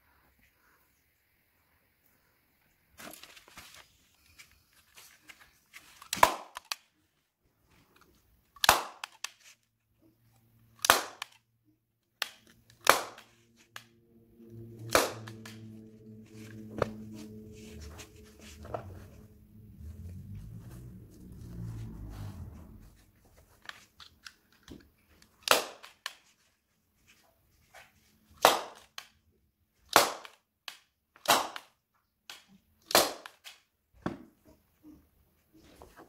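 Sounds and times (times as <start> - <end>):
staple gun snaps: 10.8 - 11.4.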